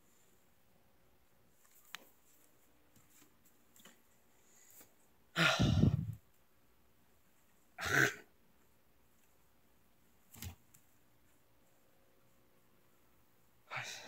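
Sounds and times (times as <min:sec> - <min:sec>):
heavy breathy sighs: 0:05.4 - 0:06.2.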